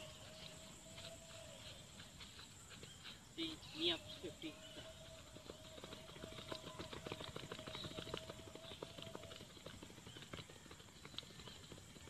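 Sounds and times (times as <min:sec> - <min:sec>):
rapid footfalls on grass: 0:00.0 - 0:04.8.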